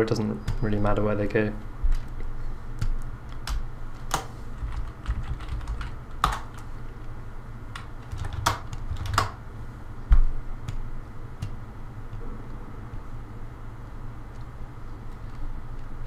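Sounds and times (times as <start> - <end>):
steady low hum: 0.0 - 16.0
keyboard typing: 1.9 - 6.7, 7.7 - 9.4.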